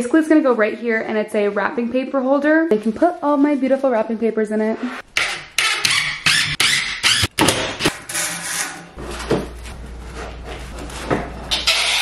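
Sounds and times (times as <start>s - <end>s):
paper rolls rustling and knocking: 8.9s - 11.5s.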